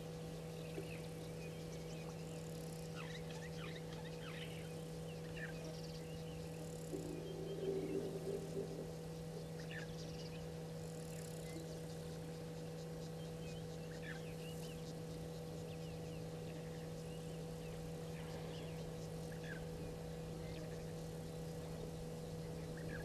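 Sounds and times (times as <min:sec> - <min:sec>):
electrical hum: 0:00.0 - 0:23.0
faint insect ticking: 0:00.0 - 0:23.0
bird chirps: 0:00.4 - 0:10.6.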